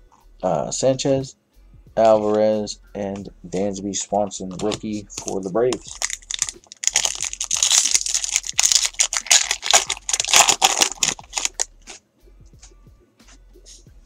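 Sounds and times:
cards being handled: 4.5 - 12.0
foil wrapper tearing and crinkling: 5.8 - 11.7.

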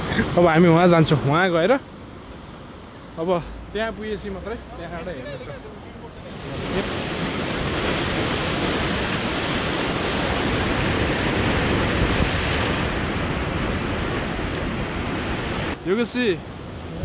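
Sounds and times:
heavy surf breaking on beach: 0.0 - 17.0
wind buffeting microphone: 6.4 - 15.8.

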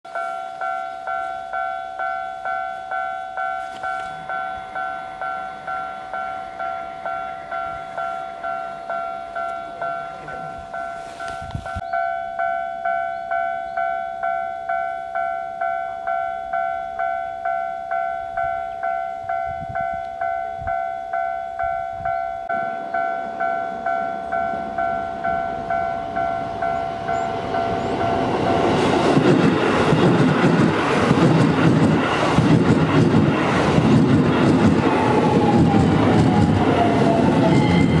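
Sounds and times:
level crossing bell ringing: 0.1 - 28.8
electric train rumble: 0.1 - 38.0.

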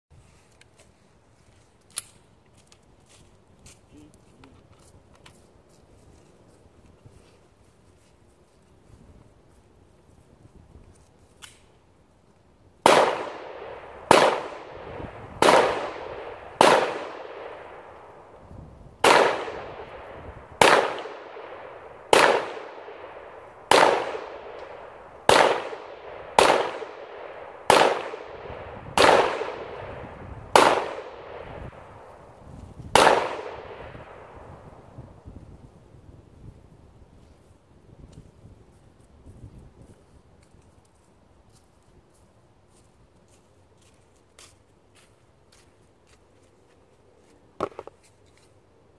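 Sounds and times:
pistol shots echoing: 12.8 - 18.2, 19.0 - 32.1, 32.9 - 34.4.

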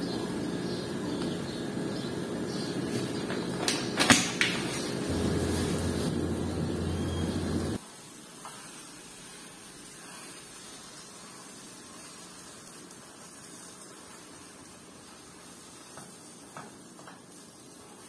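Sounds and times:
gas burner hiss: 3.7 - 18.0.

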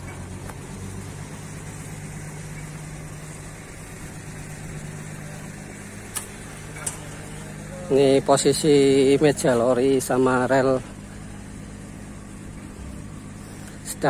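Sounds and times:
winch engine idling: 0.0 - 14.0.

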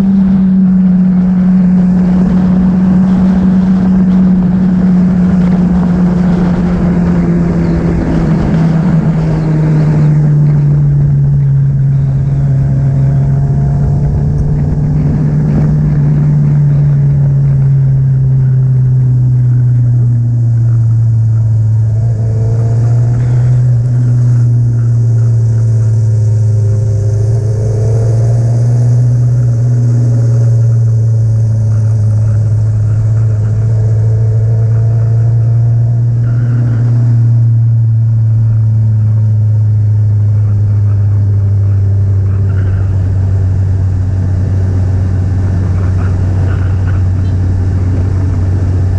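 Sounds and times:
motorcycle engine cruising: 0.0 - 48.9
wind noise: 0.0 - 48.9.

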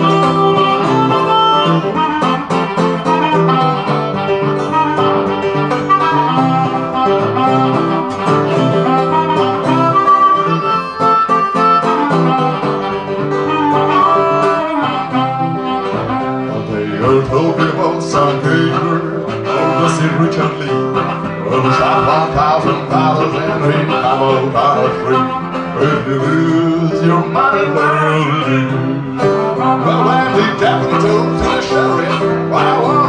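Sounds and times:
acoustic guitar strumming: 0.0 - 33.0
harmonica melody: 0.0 - 33.0.

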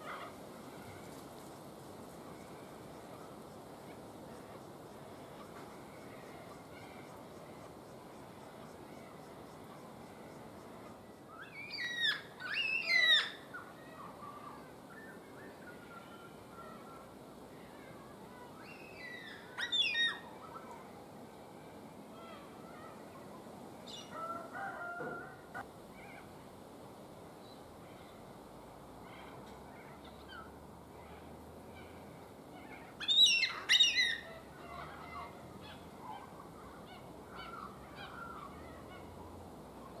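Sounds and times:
soft cockatoo calls: 11.4 - 17.0, 18.3 - 20.8, 30.1 - 39.2.

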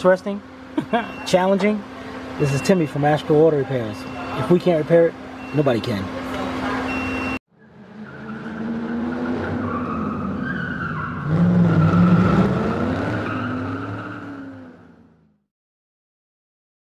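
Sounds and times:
car engine: 0.0 - 15.5
tyre squeal: 8.0 - 14.6.

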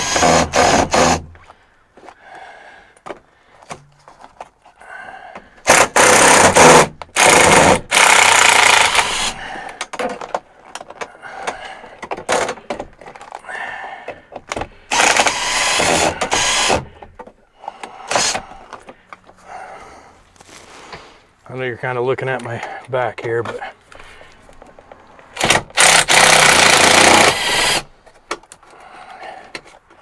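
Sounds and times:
power drill bursts: 0.0 - 1.2, 5.6 - 9.4, 14.9 - 16.9, 18.0 - 18.4, 25.4 - 27.9.

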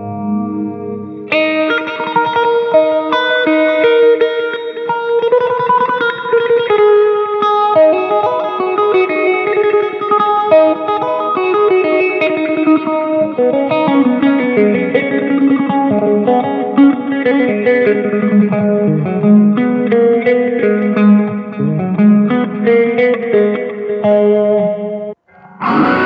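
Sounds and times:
electric guitar lead lines: 0.0 - 26.0.

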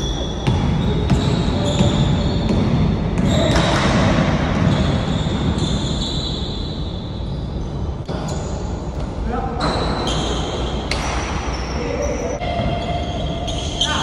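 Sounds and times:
court noise: 0.0 - 7.4, 8.0 - 14.0
basketball bouncing on court: 0.1 - 5.9.

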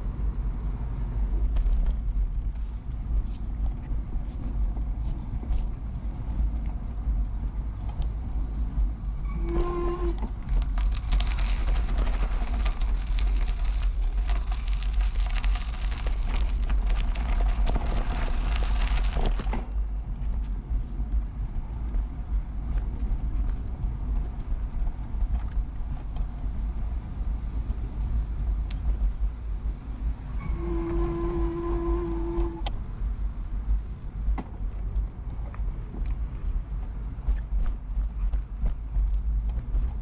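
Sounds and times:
bicycle rattles: 0.0 - 40.0
wind rumble on microphone: 0.0 - 40.0
bicycle tyre hiss: 7.8 - 16.8, 25.3 - 34.3.

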